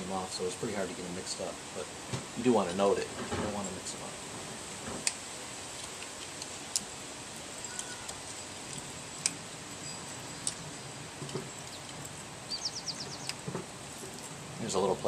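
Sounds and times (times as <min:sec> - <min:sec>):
bird chirping: 0:07.6 - 0:14.8.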